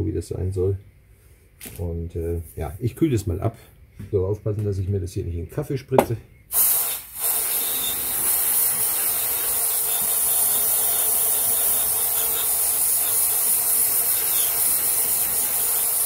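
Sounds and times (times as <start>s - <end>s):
aerosol spray hissing: 6.5s - 16.0s.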